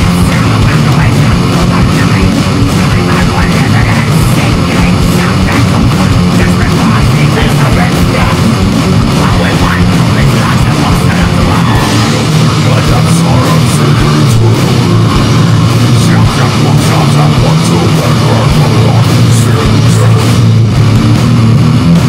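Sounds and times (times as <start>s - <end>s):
heavy rock music: 0.0s - 22.0s.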